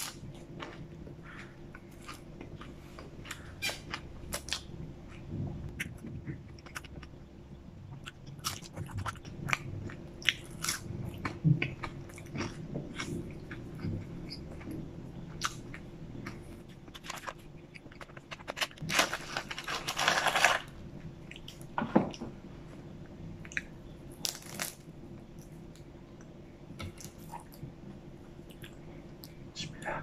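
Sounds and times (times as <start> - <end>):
crackly rustle: 16.3 - 20.8
crispy crust breaking apart: 18.1 - 20.7.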